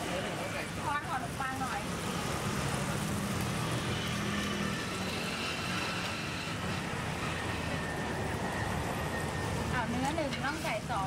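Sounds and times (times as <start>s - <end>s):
gas burner rumble and hiss: 0.0s - 11.0s
potatoes deep-frying in oil: 0.0s - 11.0s.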